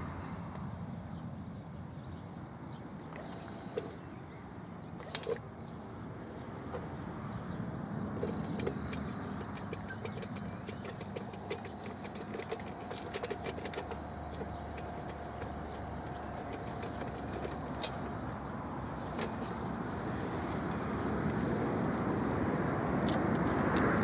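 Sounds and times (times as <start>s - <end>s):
faint motor whine: 3.0s - 24.0s
stones and gravel rattling: 8.2s - 18.2s.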